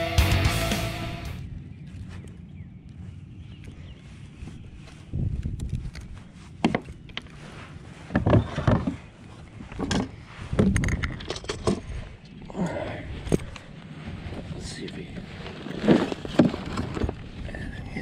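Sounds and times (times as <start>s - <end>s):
fishing gear clattering on kayak: 9.7s - 12.0s, 15.4s - 17.3s.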